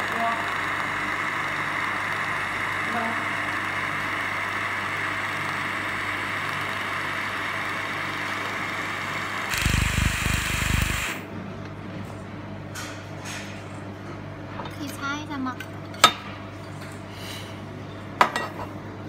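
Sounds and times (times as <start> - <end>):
laser welder hissing and humming: 0.0 - 11.3.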